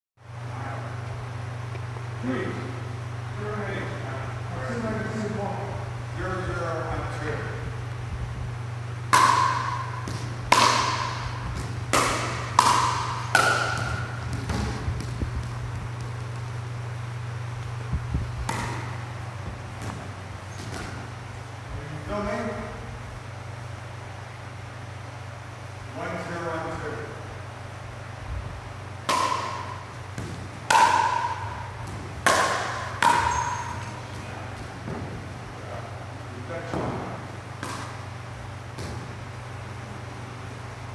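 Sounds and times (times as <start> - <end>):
steady low hum: 0.2 - 40.9
paddles hitting plastic ball: 9.1 - 16.7, 18.4 - 21.1, 29.0 - 35.2, 36.7 - 38.1.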